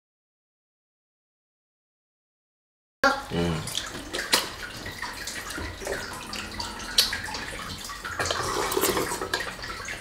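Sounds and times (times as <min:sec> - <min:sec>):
wet chewing: 0:03.8 - 0:09.6
slurping soup: 0:06.5 - 0:09.6.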